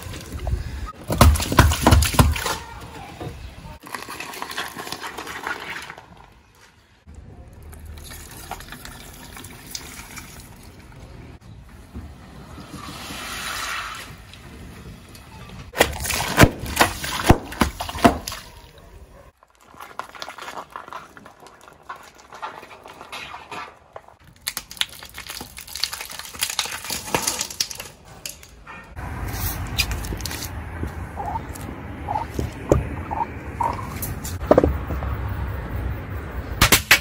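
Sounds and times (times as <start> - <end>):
tyre crushing objects: 1.0 - 2.8, 15.7 - 18.5
sharp crackling and popping: 19.3 - 28.5.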